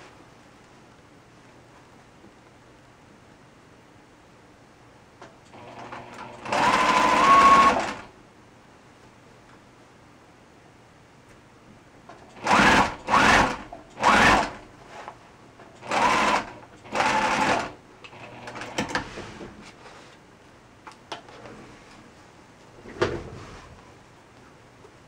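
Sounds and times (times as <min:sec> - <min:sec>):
sewing machine stitching: 0:05.5 - 0:08.1, 0:12.3 - 0:14.6, 0:15.8 - 0:19.1.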